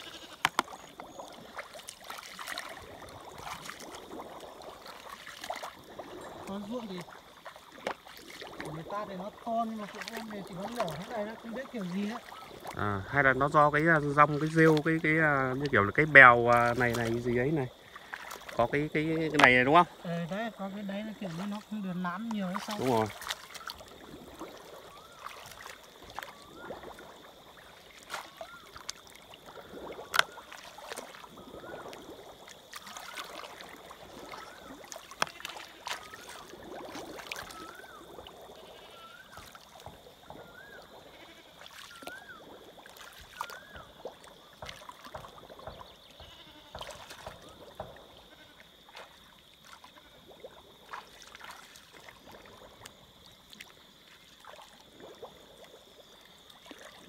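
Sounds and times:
short wavering calls: 0.0s - 1.4s, 22.8s - 28.9s, 37.1s - 39.7s, 40.3s - 44.6s
high insect drone: 0.0s - 57.0s
water sloshing and splashing: 0.0s - 57.0s.

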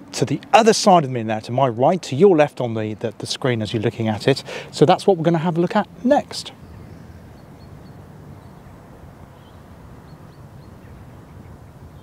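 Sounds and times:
faint bird chirps: 6.5s - 12.0s.

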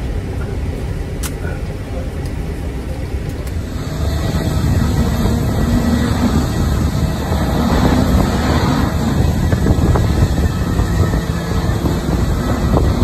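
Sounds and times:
gusty wind on microphone: 3.5s - 13.0s.

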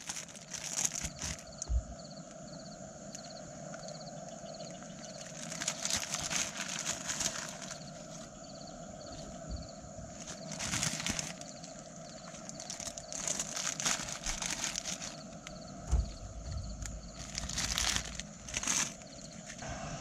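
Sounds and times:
plastic packet crinkling: 0.0s - 1.7s, 5.0s - 8.4s, 10.1s - 19.6s.

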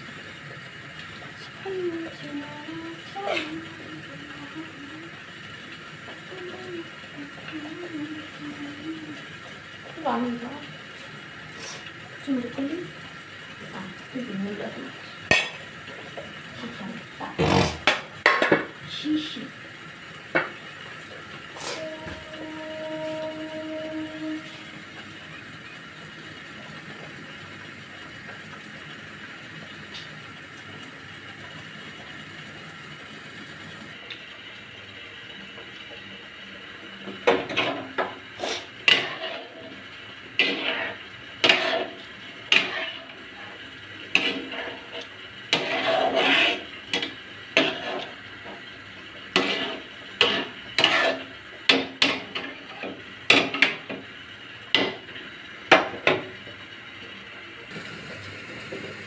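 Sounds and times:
spoon stirring in metal pan: 37.2s - 39.8s, 40.4s - 43.2s, 44.0s - 48.7s, 49.3s - 54.0s.

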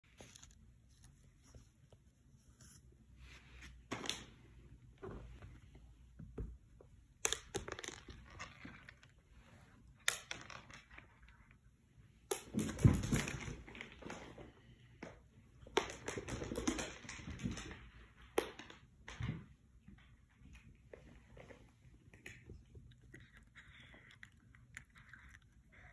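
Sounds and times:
treats dropping on wood floor: 7.2s - 8.8s
cat crunching treats: 21.3s - 25.9s.

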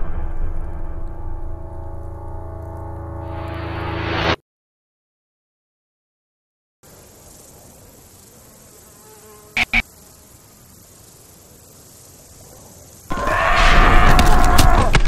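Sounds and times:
background hiss: 6.8s - 13.1s
loud buzzing: 8.9s - 9.9s.

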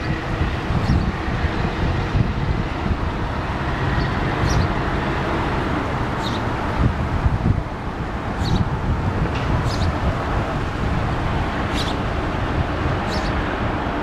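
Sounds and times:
rumbling outdoor background noise: 0.0s - 14.0s
sparrow chirps: 0.8s - 1.2s, 3.9s - 4.8s, 6.2s - 6.5s, 8.4s - 8.7s, 9.6s - 10.0s, 11.7s - 12.0s, 13.0s - 13.4s.

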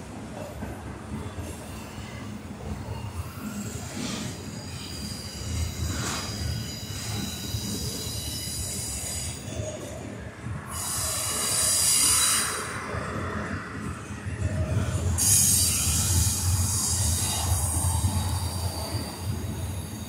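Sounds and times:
freight train rumbling: 0.0s - 20.0s
wheel squeal: 3.5s - 9.8s.

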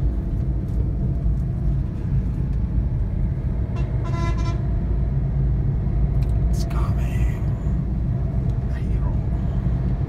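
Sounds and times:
engine and road rumble: 0.0s - 10.0s
car horn: 3.7s - 4.7s.

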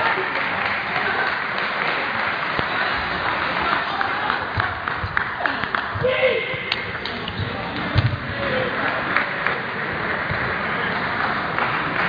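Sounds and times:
crowd chatter: 0.0s - 12.0s.

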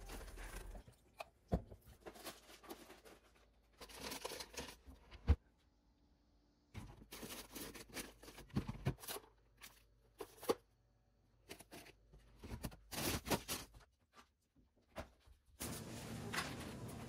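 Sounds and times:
rustles and crinkles: 0.0s - 5.4s, 11.4s - 17.0s.

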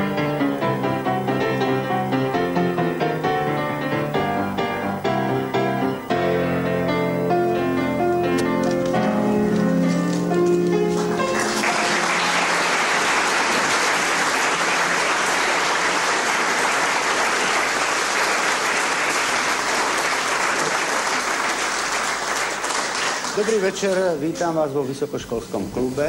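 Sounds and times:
audience applauding: 10.2s - 24.3s.

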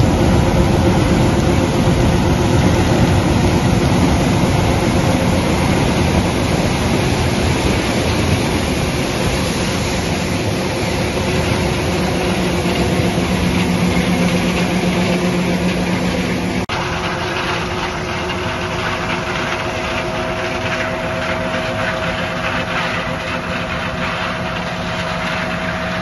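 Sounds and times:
combine harvester machinery running: 0.0s - 26.0s
low hum: 0.0s - 26.0s.

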